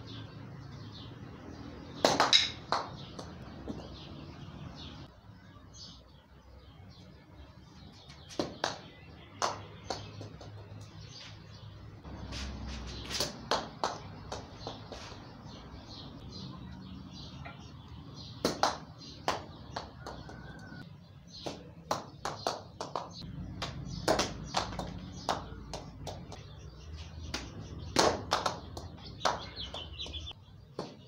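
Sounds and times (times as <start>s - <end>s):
wooden staff striking poles: 2.1s - 3.8s.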